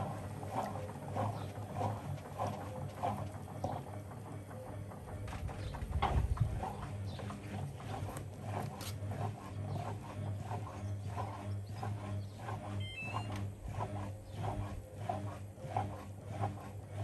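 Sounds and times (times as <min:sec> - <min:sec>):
washing machine motor hum: 0:00.0 - 0:17.0.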